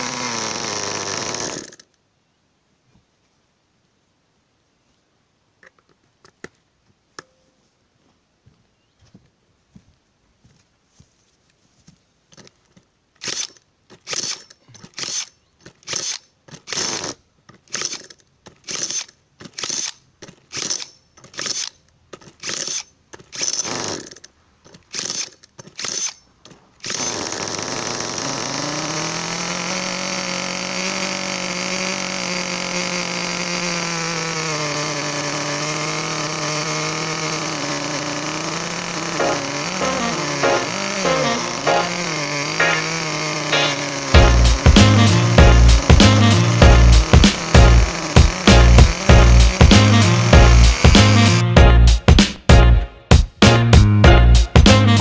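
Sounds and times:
model engine running: 0.0s - 1.8s, 26.8s - 51.9s
cordless drill cranking engine: 0.0s - 2.0s, 12.3s - 51.6s.

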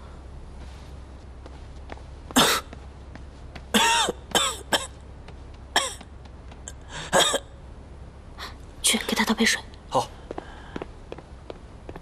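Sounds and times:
young man coughing hard: 2.3s - 2.7s, 3.7s - 5.0s, 5.8s - 6.1s, 7.1s - 7.5s.

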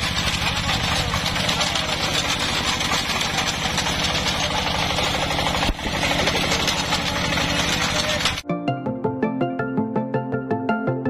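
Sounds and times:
diesel engine running: 0.0s - 8.4s
soil and potatoes clattering: 0.0s - 8.4s.

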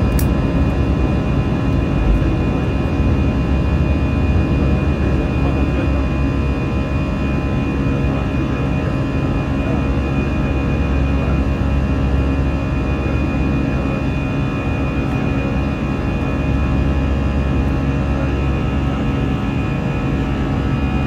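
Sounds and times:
high jet engine whine: 0.0s - 21.0s
jet engine rumble in cabin: 0.0s - 21.0s.

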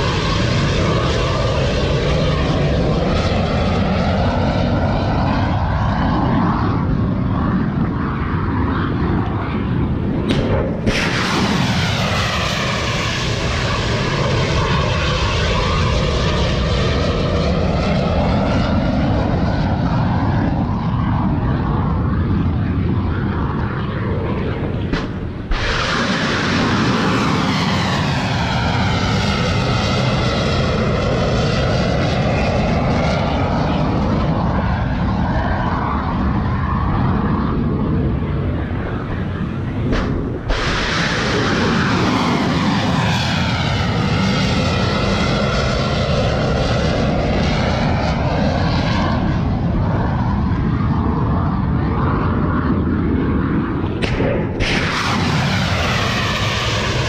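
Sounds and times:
missile launch roar: 9.9s - 16.1s, 24.3s - 32.0s, 39.4s - 45.0s, 53.9s - 57.0s.

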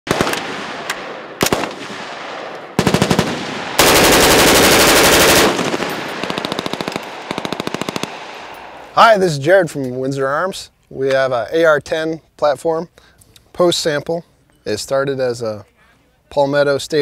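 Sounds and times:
rifle firing bursts: 0.1s - 8.8s.

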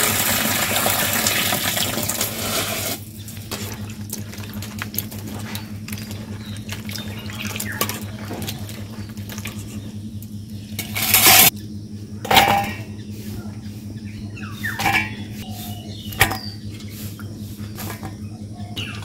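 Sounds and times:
water gushing: 0.0s - 4.0s
water splashing in a bowl: 0.0s - 9.8s
steady low hum: 2.9s - 19.0s
pots and dishes clinking: 10.8s - 11.5s, 12.3s - 12.9s, 14.8s - 15.4s.

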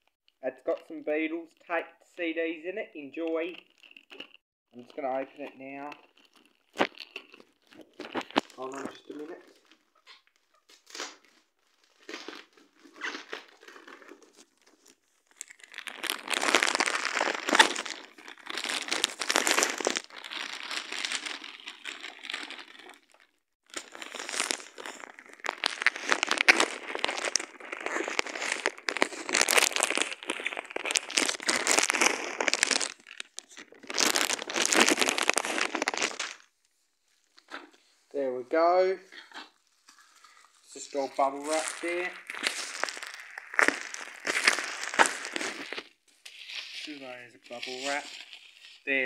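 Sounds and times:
plastic packaging crinkling: 3.1s - 37.9s, 39.1s - 49.0s.

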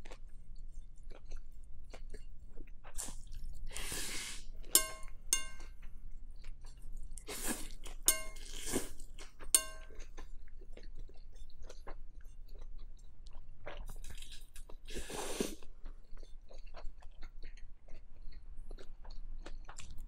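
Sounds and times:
chopsticks clinking on glass bowl: 4.7s - 5.7s, 8.1s - 8.6s, 9.6s - 9.9s
chewing: 12.6s - 20.0s.

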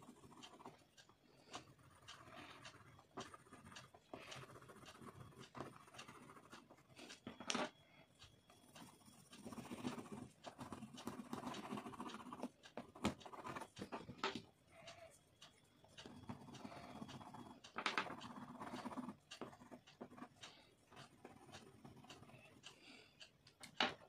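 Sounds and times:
crayon scratching on paper: 1.7s - 7.2s, 8.6s - 13.9s, 18.1s - 22.6s.

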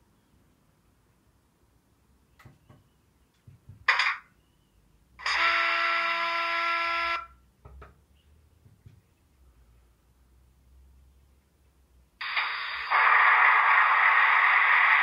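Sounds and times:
steady tone with hiss: 12.1s - 15.0s
loud burst of hiss: 12.2s - 15.0s.

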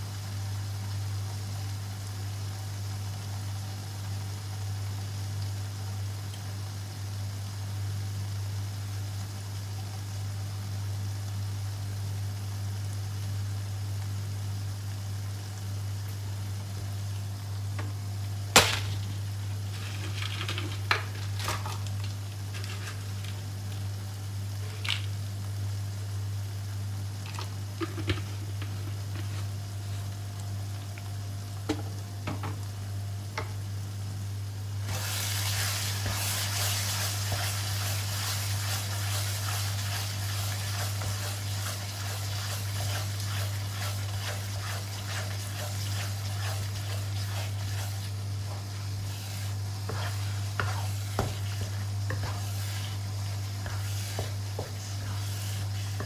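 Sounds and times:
spatula scraping sizzle: 4.1s - 56.0s
steady low hum: 13.5s - 56.0s.

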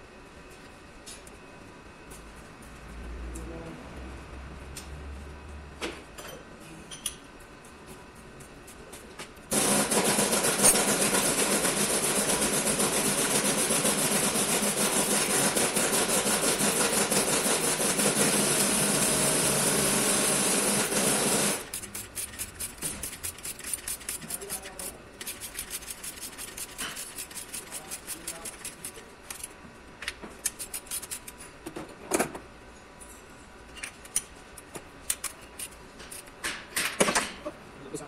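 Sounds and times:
power tool running: 9.5s - 21.8s
rhythmic scraping strokes: 21.5s - 29.1s.

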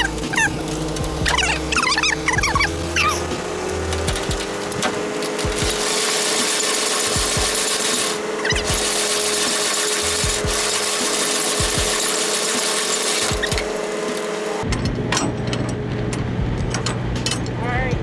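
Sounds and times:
crank grinding and rattling: 0.0s - 17.8s.

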